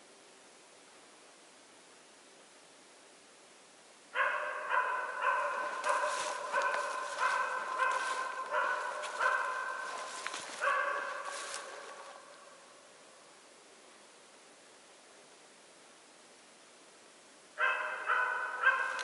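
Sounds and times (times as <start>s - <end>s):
dog barking: 4.2s - 12.2s, 17.6s - 19.0s.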